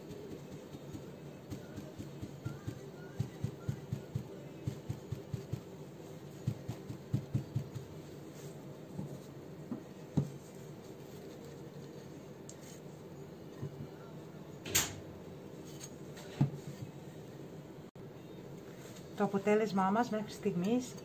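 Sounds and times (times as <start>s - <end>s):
faint steady hum: 0.0s - 21.0s
paper towel dabbing taps: 6.4s - 8.1s.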